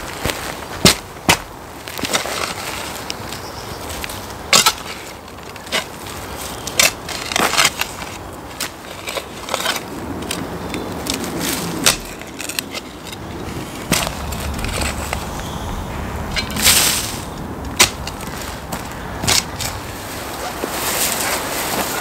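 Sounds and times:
metal spade digging soil: 4.4s - 22.0s.

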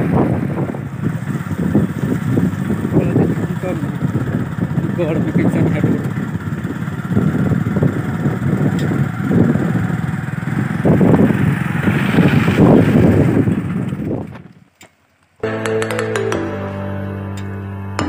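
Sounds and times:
motorcycle engine rumbling: 0.0s - 16.1s
music: 15.4s - 18.0s.

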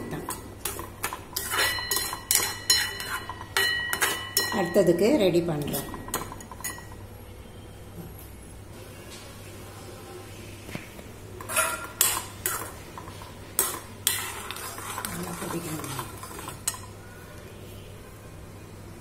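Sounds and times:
metal spoon clinking and scraping pan: 0.0s - 7.0s, 11.4s - 17.0s.

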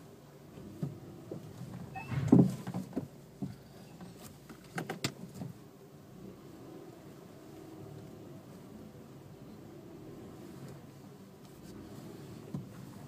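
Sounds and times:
car brakes groaning: 1.1s - 2.9s.

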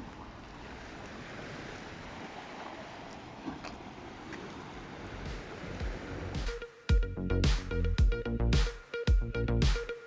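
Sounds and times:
waves washing against rocks: 0.0s - 6.5s.

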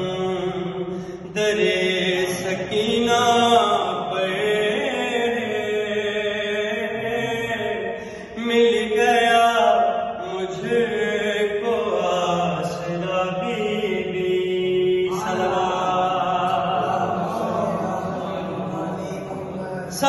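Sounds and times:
man chanting devotional poem: 0.0s - 20.0s.

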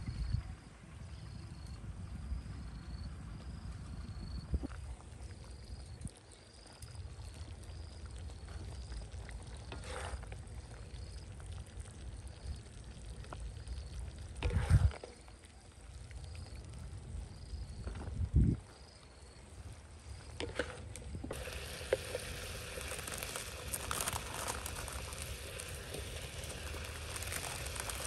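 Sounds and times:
metal spatula scraping wok: 9.7s - 10.3s.

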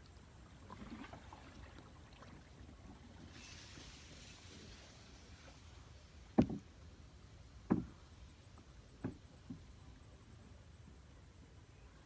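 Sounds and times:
dull wooden knocks on boat hull: 6.3s - 6.7s, 7.6s - 8.0s, 9.0s - 9.7s.

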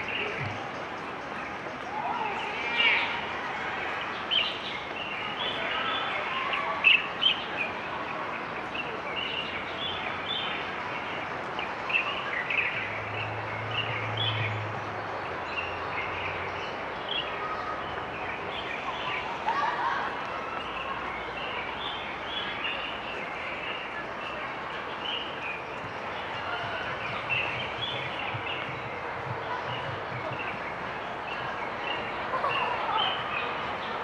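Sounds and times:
steady outdoor hiss: 0.0s - 34.0s
small birds chirping: 20.5s - 34.0s.

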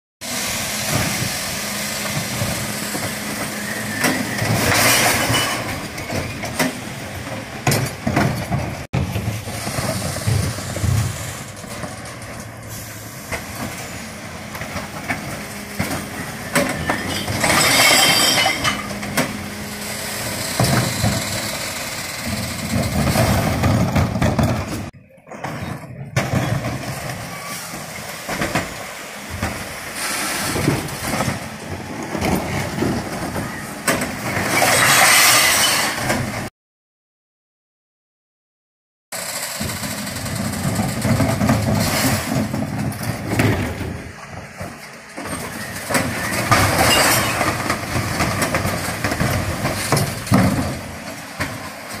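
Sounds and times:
refuse truck engine humming: 0.3s - 34.4s, 39.2s - 52.0s
clanks and knocks of bins: 2.0s - 36.5s, 39.6s - 52.0s
rattling crash of glass and cans: 4.5s - 5.8s, 16.6s - 19.1s, 34.5s - 36.1s, 45.3s - 50.9s.

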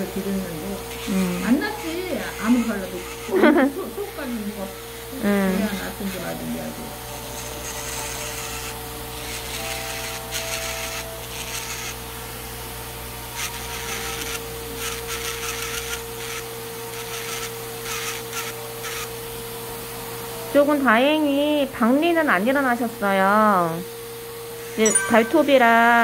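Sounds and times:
electric nail drill whining: 0.0s - 20.3s
drill bit grinding toenail: 0.2s - 3.7s, 7.2s - 12.0s, 13.3s - 19.1s.

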